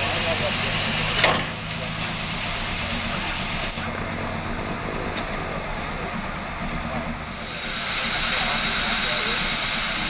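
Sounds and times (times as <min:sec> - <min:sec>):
steam hissing: 0:00.0 - 0:10.0
low hum: 0:01.4 - 0:08.7.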